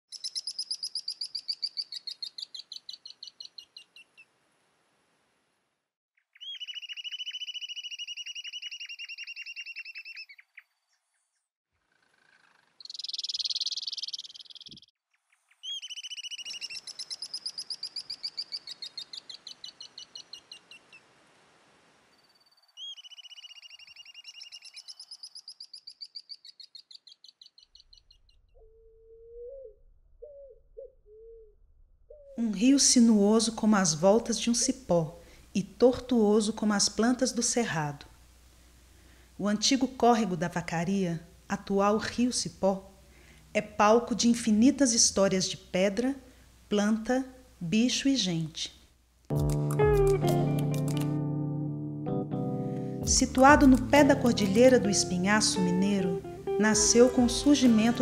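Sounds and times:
low bird call: 0:27.8 - 0:32.4.

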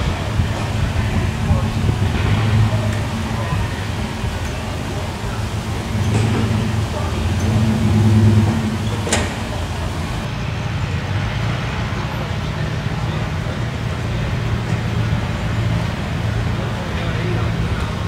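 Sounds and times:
background voices: 0:00.0 - 0:10.3
engine running: 0:00.0 - 0:18.0.

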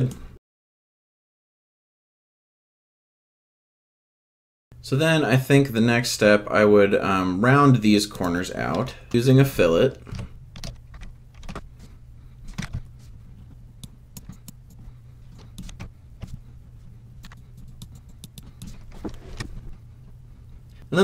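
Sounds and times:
steady low hum: 0:04.8 - 0:21.0
computer mouse clicks: 0:13.8 - 0:16.4, 0:17.2 - 0:19.1.

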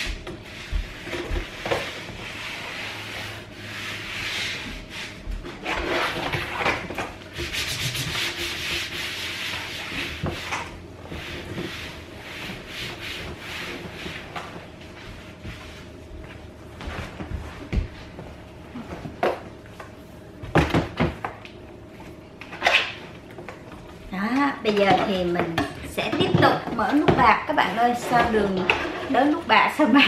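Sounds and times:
paper napkins rubbing on table: 0:00.0 - 0:06.6, 0:07.3 - 0:16.0.

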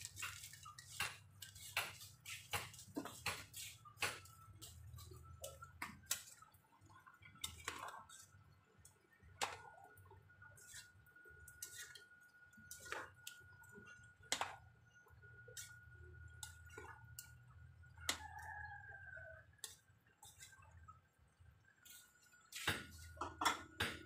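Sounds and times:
metal spoon scraping a pot: 0:11.6 - 0:12.1.

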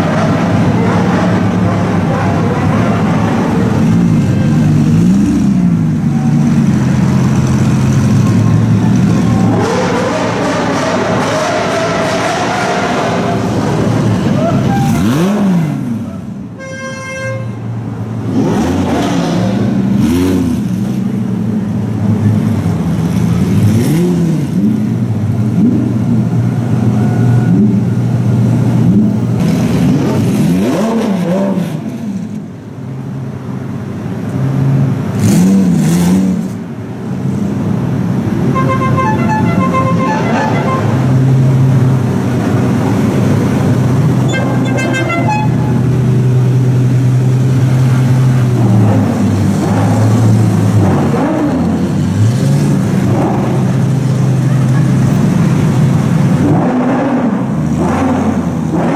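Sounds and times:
car engine idling and revving: 0:00.0 - 0:58.9
car horn pulses: 0:16.6 - 0:17.6, 0:38.5 - 0:41.2, 0:44.2 - 0:45.8.

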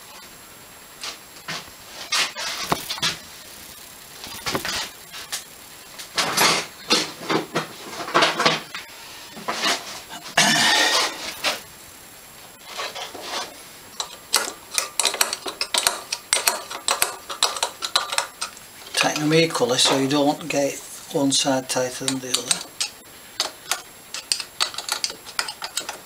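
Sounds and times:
spanner and metal parts clinking: 0:14.0 - 0:20.1, 0:22.0 - 0:26.0.

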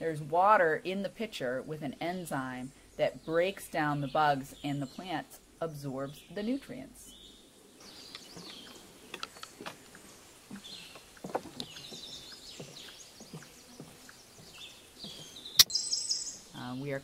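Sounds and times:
songbirds singing: 0:00.0 - 0:17.0
sharp click: 0:15.6 - 0:15.8.

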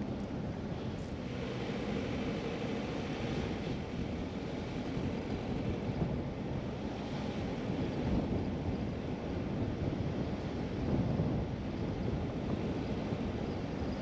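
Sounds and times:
wind on microphone: 0:03.2 - 0:14.0.

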